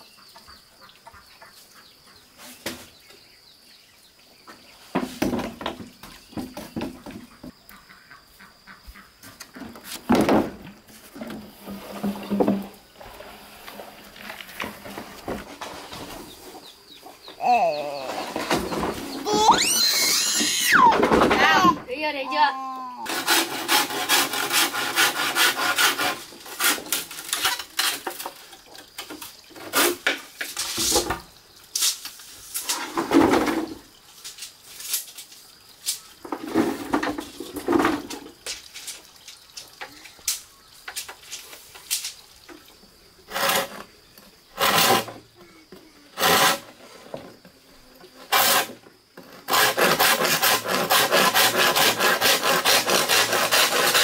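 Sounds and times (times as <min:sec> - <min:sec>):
scrapes and knocks: 0:04.5 - 0:07.6, 0:09.2 - 0:16.8, 0:18.0 - 0:19.5, 0:23.1 - 0:35.3, 0:35.9 - 0:40.0, 0:43.3 - 0:54.0.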